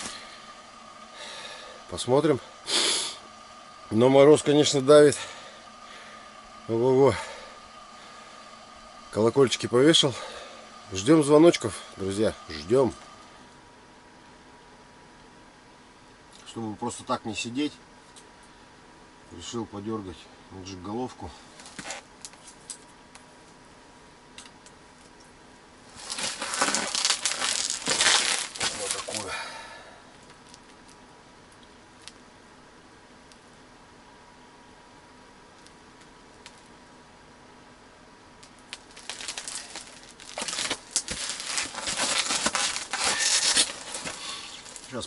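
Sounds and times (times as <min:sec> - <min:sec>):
loud crinkling rustle: 0:25.9 - 0:29.3, 0:38.5 - 0:45.0.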